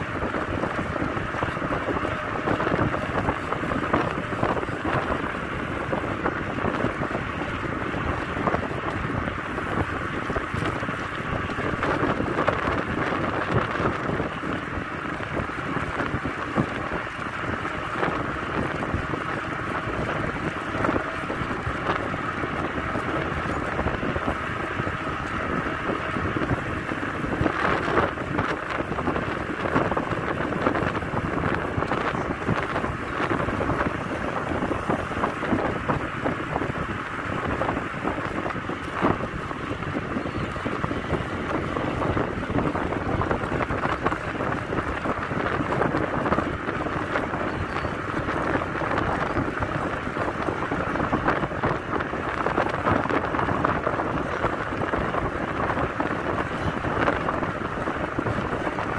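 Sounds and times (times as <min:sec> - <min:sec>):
wind rushing over microphone: 0:00.0 - 0:58.9.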